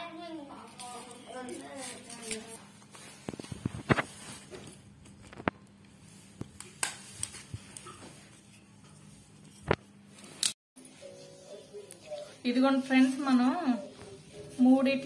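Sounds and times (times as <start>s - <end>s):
paper rustling: 0.8s - 5.5s.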